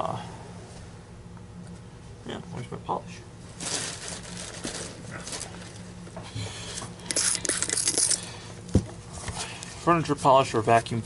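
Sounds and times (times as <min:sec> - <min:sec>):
rustling: 0:03.5 - 0:05.7.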